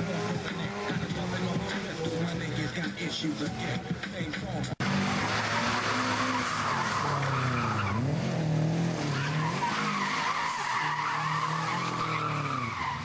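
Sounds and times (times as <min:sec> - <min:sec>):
car engine revving: 0:00.0 - 0:03.9, 0:04.6 - 0:13.0
tyres squealing: 0:05.2 - 0:13.0.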